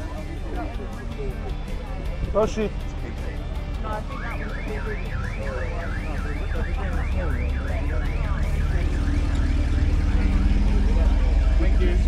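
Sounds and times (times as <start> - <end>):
car alarm siren: 3.8 - 12.0.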